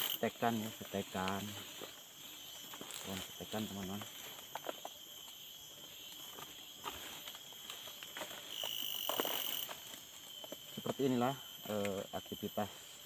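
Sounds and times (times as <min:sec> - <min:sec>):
high insect chorus: 0:00.0 - 0:13.0
leaves rustling: 0:00.0 - 0:13.0
loud high insect drone: 0:00.0 - 0:13.0.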